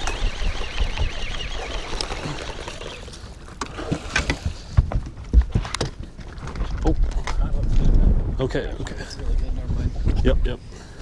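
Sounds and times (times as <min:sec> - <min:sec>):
fish thrashing and splashing: 0:00.0 - 0:04.8.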